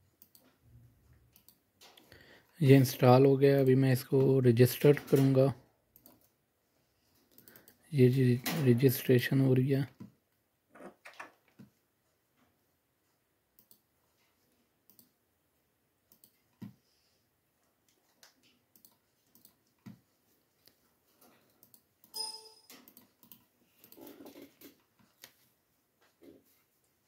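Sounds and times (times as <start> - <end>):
faint computer mouse clicks: 13.6 - 13.8, 16.1 - 16.7
short beep tone: 22.2 - 22.7.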